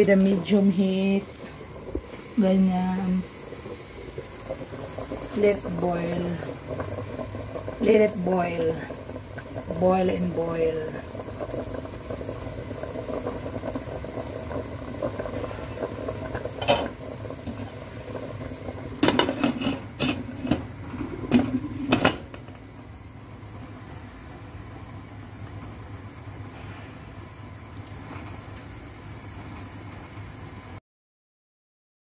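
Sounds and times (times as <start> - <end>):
soup boiling in pot: 0.0 - 30.8
pots and lids clinking: 16.6 - 17.6, 19.0 - 22.5.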